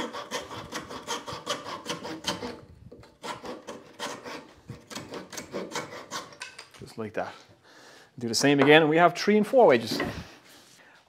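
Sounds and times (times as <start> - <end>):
hand saw cutting wood: 0.0 - 6.6.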